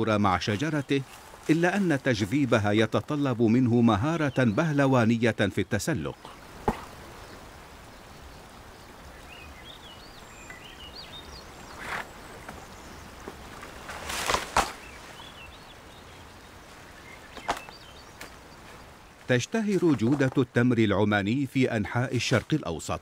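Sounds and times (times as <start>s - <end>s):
small birds chirping: 0.0s - 23.0s
steady outdoor hiss: 0.0s - 23.0s
scraping rustles against palm trunk: 0.5s - 2.6s, 11.6s - 15.4s, 16.7s - 20.5s.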